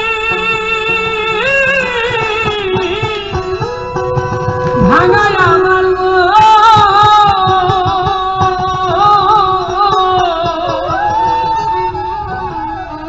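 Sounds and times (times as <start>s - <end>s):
plucked strings: 0.0s - 13.0s
drum strokes: 2.0s - 11.5s.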